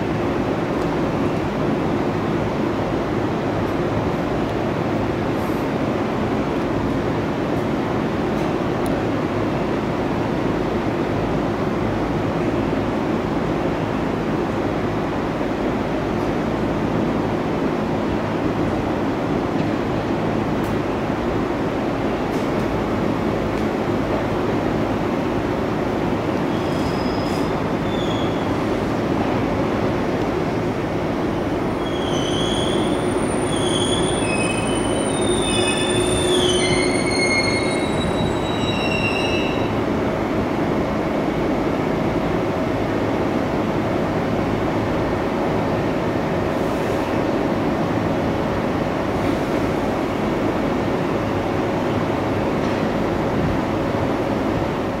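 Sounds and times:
stopped train humming: 0.0 - 55.0
train wheels rumbling on rail: 0.0 - 55.0
high-pitched brake squeals: 26.5 - 28.5, 31.8 - 39.8.

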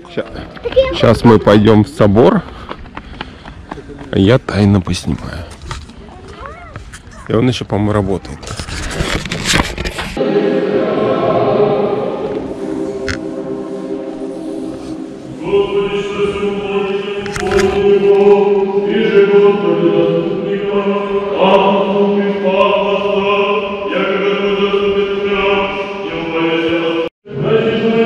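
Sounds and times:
choir chanting held chords: 10.2 - 28.0.

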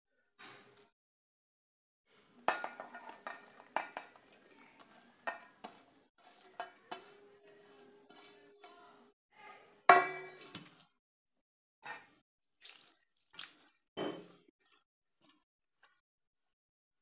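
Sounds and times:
steel bowls clanking: 2.4 - 8.9
hand stirring onion slices: 2.5 - 9.0.

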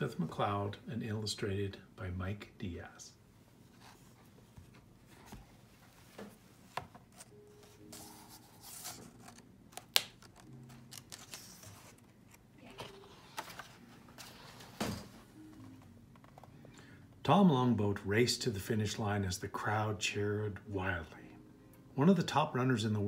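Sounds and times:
book pages turning: 3.7 - 16.5.

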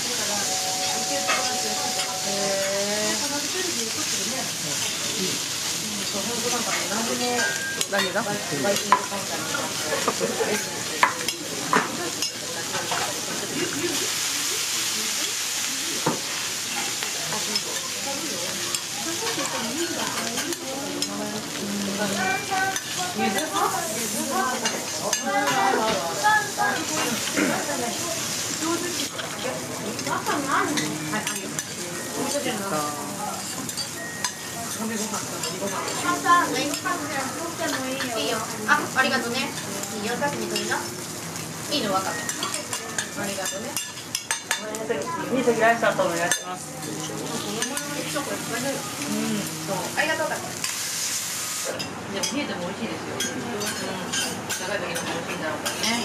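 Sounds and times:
food sizzling on a griddle: 0.0 - 56.0
voices talking: 0.2 - 4.3.

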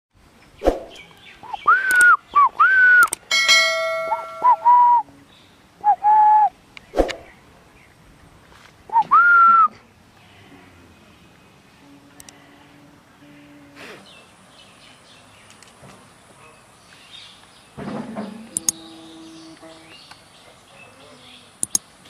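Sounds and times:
sharp clicks: 1.8 - 2.1, 3.0 - 3.3, 18.5 - 18.8, 21.6 - 21.9
bell-like ding: 3.3 - 4.8
parrot whistling: 4.1 - 5.0.

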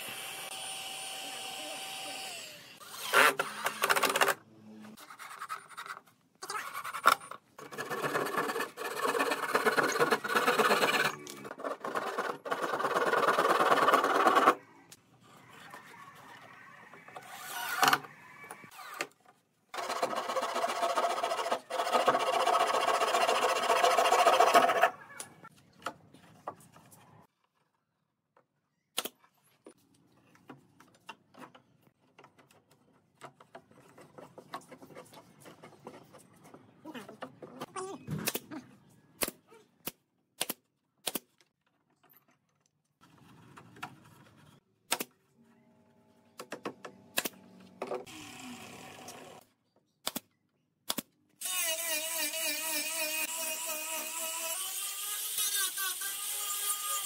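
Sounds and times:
cordless drill driving screws: 0.1 - 4.3.

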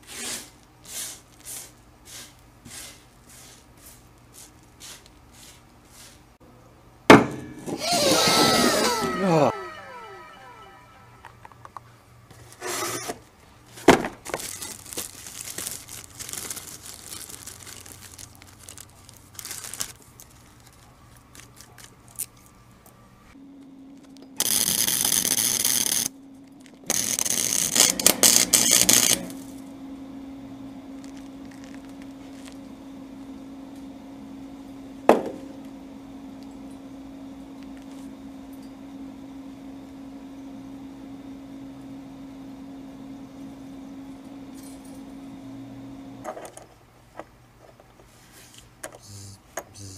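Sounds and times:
welding arc crackle: 14.3 - 20.0, 24.0 - 26.1, 26.8 - 29.6
steady low hum: 14.8 - 47.1, 48.0 - 49.9.

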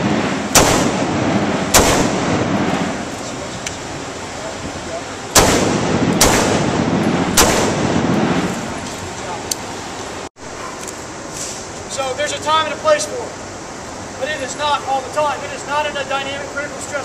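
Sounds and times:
rifle shots with echo: 0.0 - 3.1, 5.3 - 8.7.

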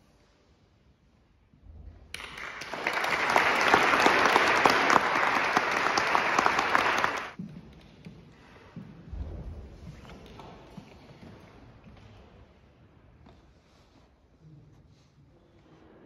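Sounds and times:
audience applauding: 2.2 - 7.4.

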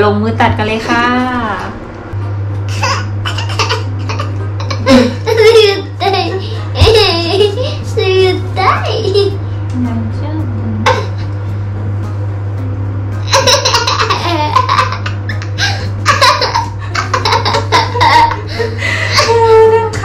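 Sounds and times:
boy giggling: 2.8 - 7.8, 13.3 - 20.0.

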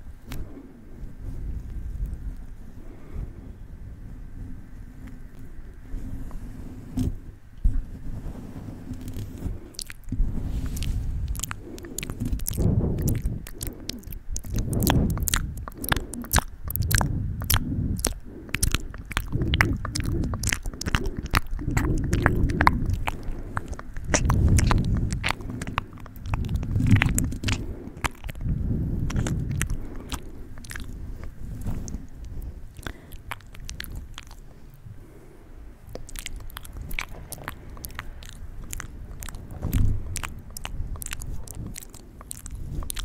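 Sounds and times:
muffled low swells: 0.0 - 43.0
tongue and lip clicks: 8.8 - 35.2, 35.8 - 43.0.

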